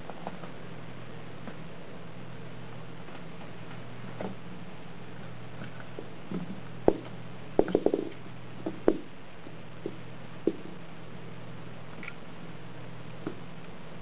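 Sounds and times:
steady low hum: 0.0s - 14.0s
ball knocking on wooden floor: 6.4s - 9.1s, 9.8s - 10.7s.

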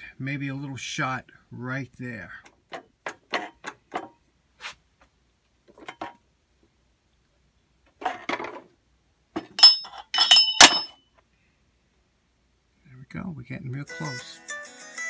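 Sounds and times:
metal scraping and handling: 2.7s - 4.2s, 5.7s - 6.2s, 7.9s - 8.7s, 9.4s - 11.0s.

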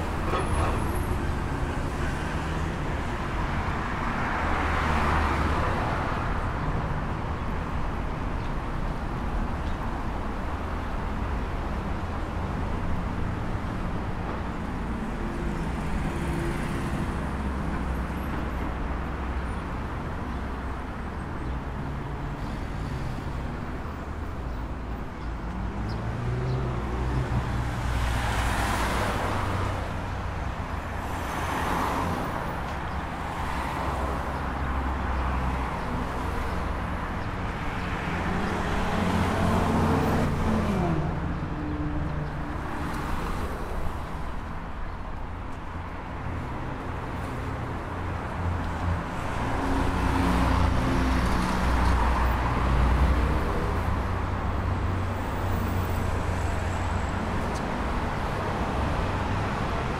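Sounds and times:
cars passing close by: 0.0s - 8.4s, 20.8s - 59.9s
traffic engines rumbling: 0.0s - 59.9s.

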